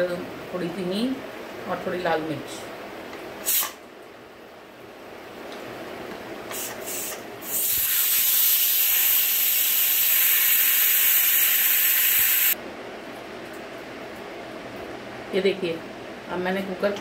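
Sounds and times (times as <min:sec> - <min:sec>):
pressure cooker steam hissing: 0:06.5 - 0:12.6.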